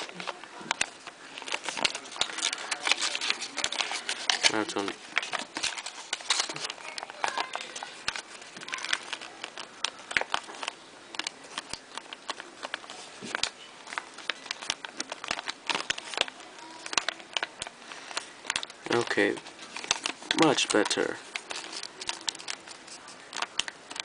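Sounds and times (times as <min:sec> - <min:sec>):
paper folding and crackling: 0:00.0 - 0:24.0.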